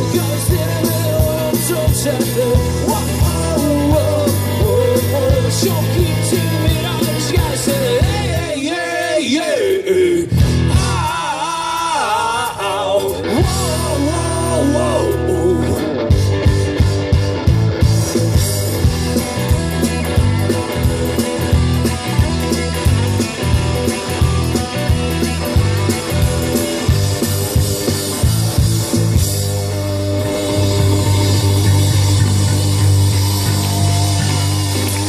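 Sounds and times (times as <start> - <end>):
steady drum beat: 0.0 - 8.6, 10.4 - 11.9, 13.1 - 35.0
person singing: 0.0 - 16.0
live rock band playing: 0.0 - 35.0.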